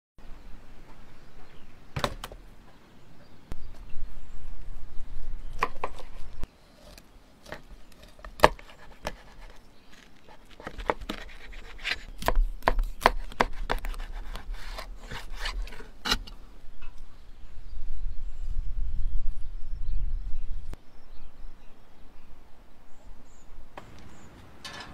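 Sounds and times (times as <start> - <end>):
knife chopping on wooden board: 10.5 - 16.2.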